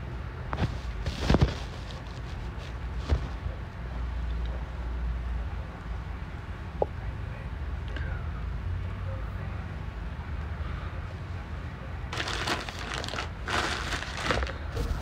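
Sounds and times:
rustling handling noise: 0.6 - 3.5, 12.1 - 15.0
low microphone hum: 12.1 - 15.0.

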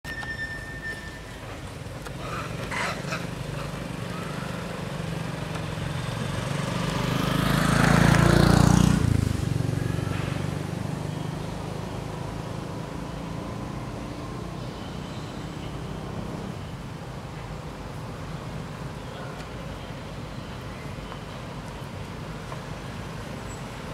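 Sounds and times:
vehicle passing by: 2.2 - 16.7.

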